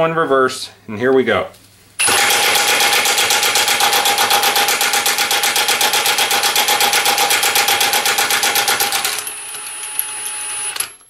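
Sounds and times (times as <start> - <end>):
impact wrench hammering: 2.0 - 10.0
power tool whining: 2.0 - 11.0.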